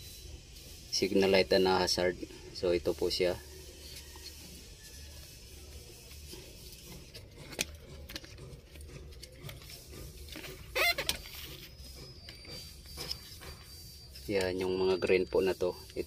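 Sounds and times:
short squeak: 0:10.4 - 0:16.0.

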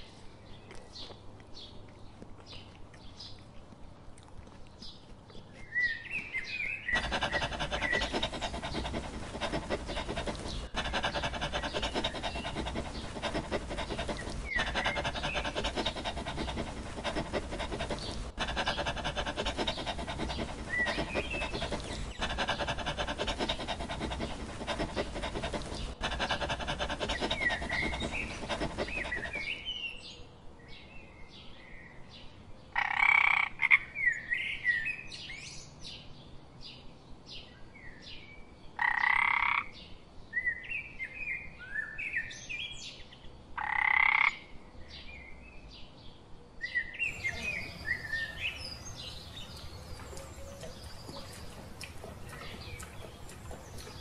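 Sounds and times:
birds chirping: 0:04.8 - 0:29.9, 0:47.0 - 0:54.0
dog panting: 0:06.2 - 0:29.7, 0:47.0 - 0:54.0.

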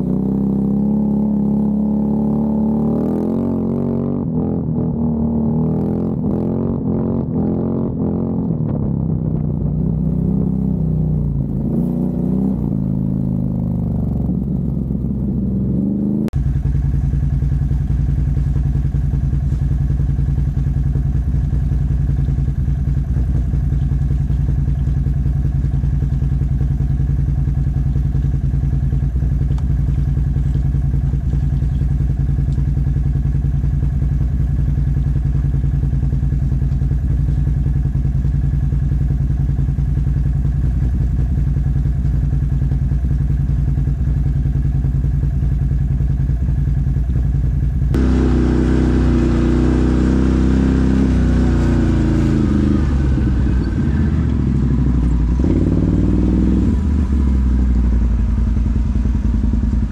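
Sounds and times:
engine idling: 0:08.2 - 0:59.9
shifting pitched sound: 0:47.9 - 0:59.9.

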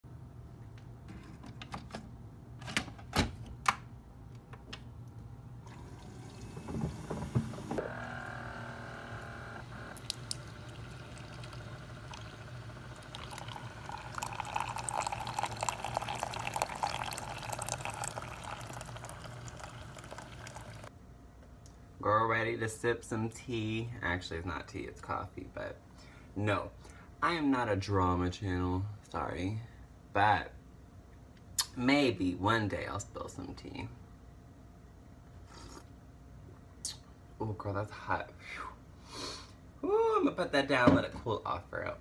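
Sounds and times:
coffee maker humming: 0:05.6 - 0:20.9
coffee streaming into mug: 0:09.8 - 0:20.9.

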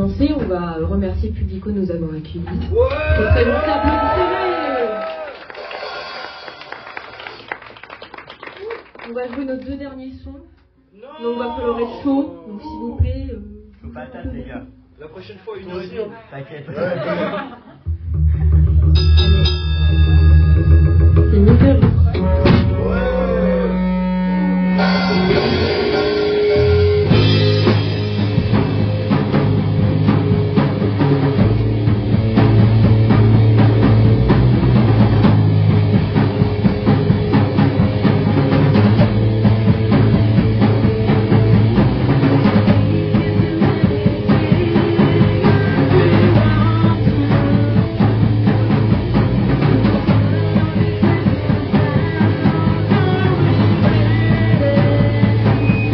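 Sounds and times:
drum kit: 0:00.0 - 0:08.0, 0:17.2 - 0:55.9
punk band playing: 0:00.0 - 0:08.3, 0:16.9 - 0:55.9
bending electric guitar notes: 0:17.9 - 0:55.9
held bass guitar note: 0:17.9 - 0:55.9.

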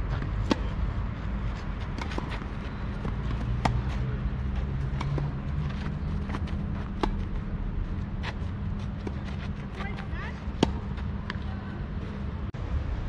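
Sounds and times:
tennis rackets hitting ball: 0:00.1 - 0:00.9, 0:01.6 - 0:07.5, 0:08.2 - 0:11.4.

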